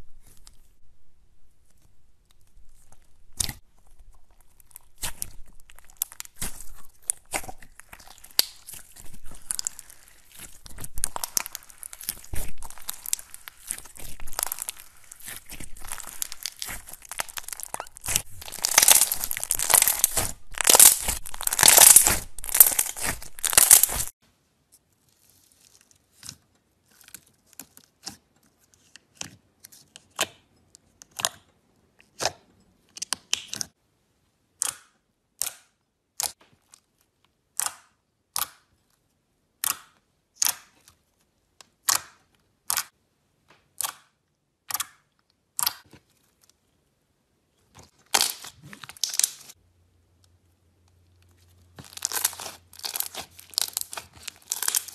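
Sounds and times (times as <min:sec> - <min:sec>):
slime crackling and popping: 0:02.3 - 0:24.2, 0:47.7 - 0:49.6, 0:51.7 - 0:54.9.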